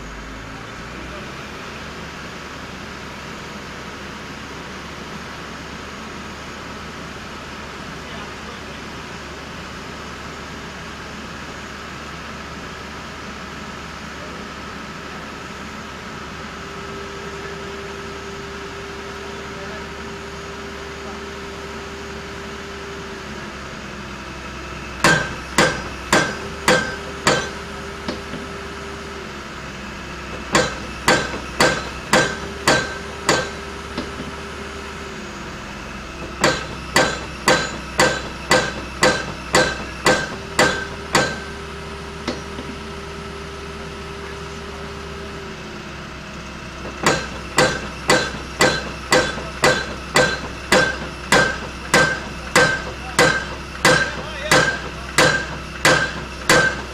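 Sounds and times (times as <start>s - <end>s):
pile-driving hammer striking metal: 25.0s - 28.4s, 30.3s - 34.3s, 36.2s - 41.6s, 46.8s - 56.9s.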